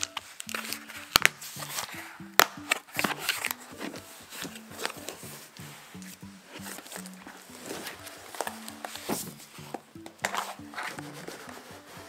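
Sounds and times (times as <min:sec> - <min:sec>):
cardboard snapping: 0:00.0 - 0:03.6
background music: 0:00.0 - 0:12.0.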